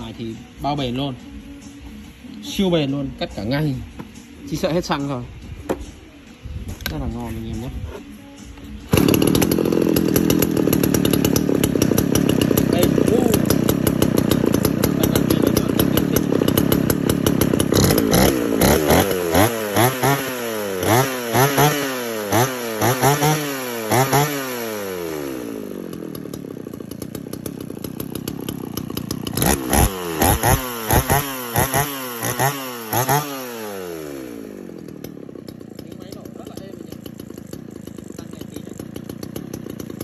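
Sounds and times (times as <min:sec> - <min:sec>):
chainsaw engine revving: 0:08.9 - 0:40.0.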